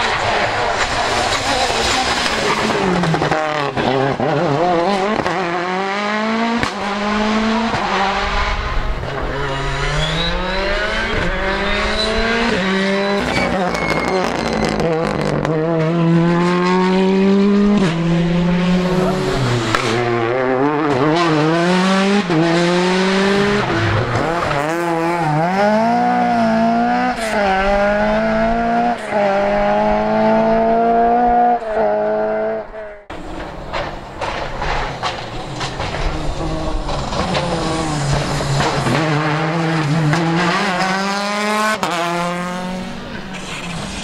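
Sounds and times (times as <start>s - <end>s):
rally car engine revving: 0.0s - 44.0s
tyre squeal: 9.5s - 15.3s.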